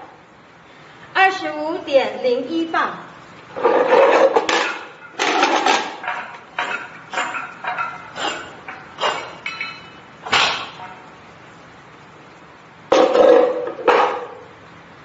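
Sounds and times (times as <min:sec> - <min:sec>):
sharp metallic clanks: 0:04.2 - 0:11.1.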